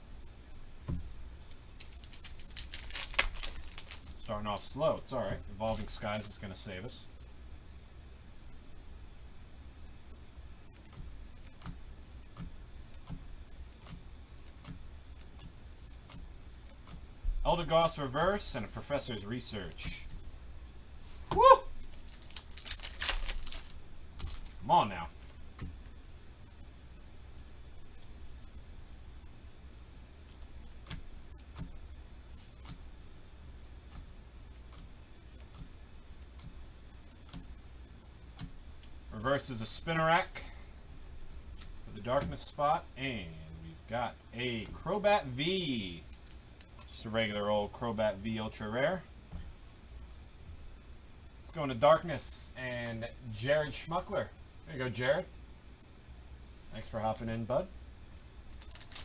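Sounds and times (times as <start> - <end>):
low steady hum: 0.0 - 59.0
trading cards clicking and snapping: 1.8 - 4.2, 21.8 - 24.6, 32.4 - 32.9, 58.5 - 59.0.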